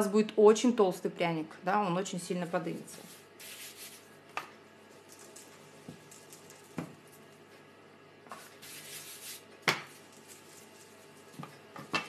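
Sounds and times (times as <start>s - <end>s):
soft rubbing on countertop: 2.8s - 4.2s, 8.3s - 11.5s.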